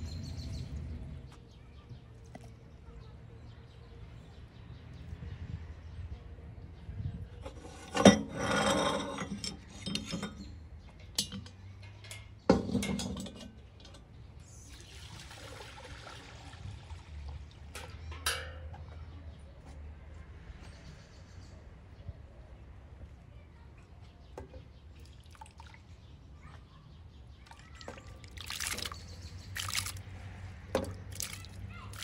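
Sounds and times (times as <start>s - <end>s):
metal clank: 11.2s - 14.1s, 17.8s - 18.9s
metal cookware knocking: 18.1s - 18.8s.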